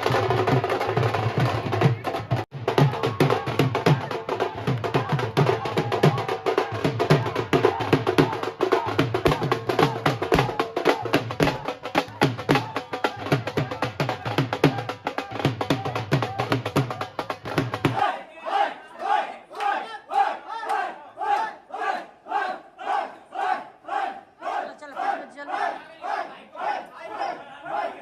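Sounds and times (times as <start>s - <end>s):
drum beaten with sticks: 0.0s - 18.1s.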